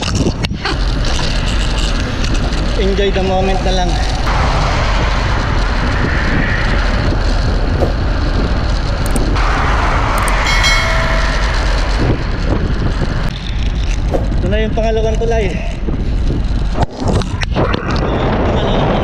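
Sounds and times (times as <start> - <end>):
road and traffic noise: 0.0 - 19.0
wind buffeting microphone: 0.0 - 19.0
short pitched tone: 10.2 - 13.2.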